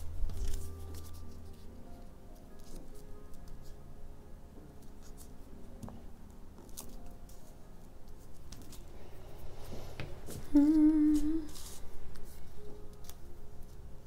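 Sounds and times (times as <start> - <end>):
person humming a tune: 10.3 - 11.8.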